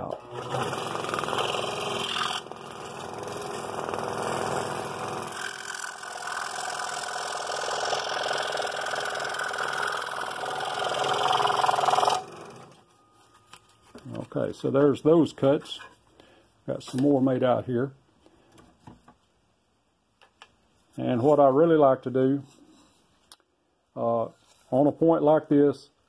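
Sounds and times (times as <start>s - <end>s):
scroll saw cutting wood: 0.0s - 12.8s.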